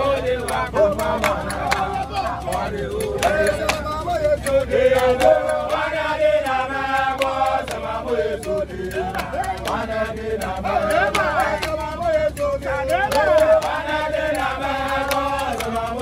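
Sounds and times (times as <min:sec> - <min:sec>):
men singing a chant: 0:00.0 - 0:16.0.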